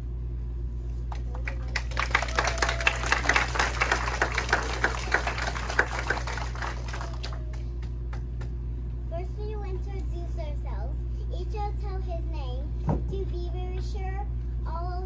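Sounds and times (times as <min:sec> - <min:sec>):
steady low hum: 0:00.0 - 0:15.0
audience clapping: 0:01.1 - 0:08.6.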